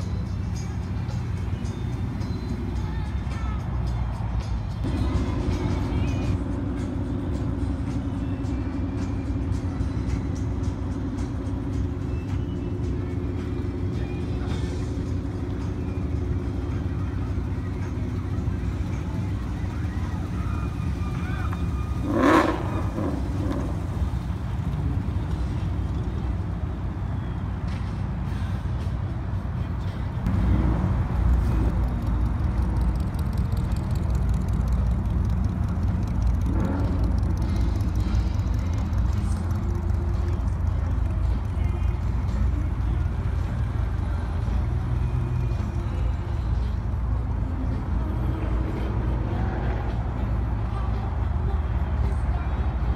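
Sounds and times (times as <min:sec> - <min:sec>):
pickup truck engine rumble: 0:00.0 - 0:52.9.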